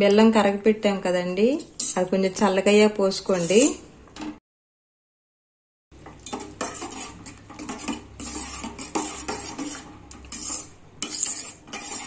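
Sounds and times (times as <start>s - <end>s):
spoon scraping and clinking a pot: 1.6s - 2.1s, 6.0s - 12.0s.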